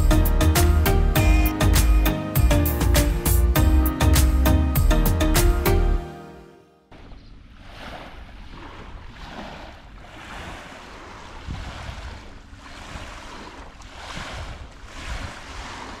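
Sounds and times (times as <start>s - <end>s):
small waves washing onto beach: 6.9s - 16.0s
wind buffeting microphone: 7.6s - 16.0s.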